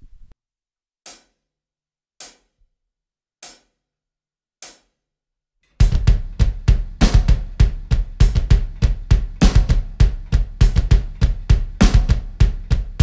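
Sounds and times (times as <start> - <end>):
double bass drum kicks: 5.8 - 13.0.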